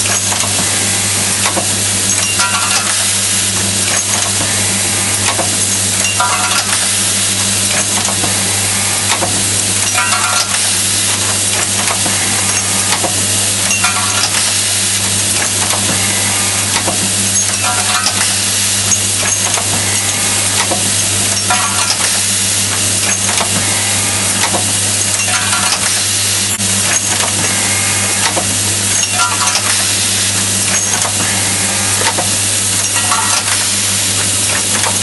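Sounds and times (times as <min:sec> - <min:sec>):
machine rattling hiss: 0:00.0 - 0:35.0.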